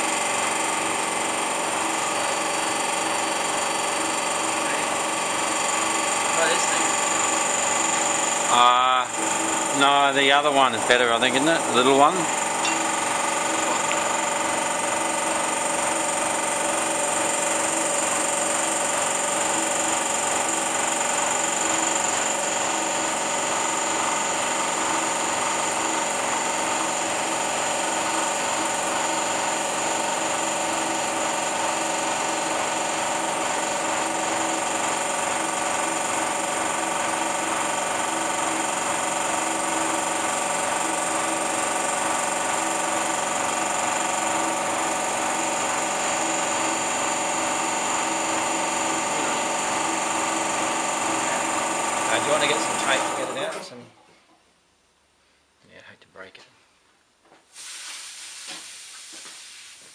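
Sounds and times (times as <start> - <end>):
motor droning with high whine: 0.0 - 33.9, 44.5 - 53.7.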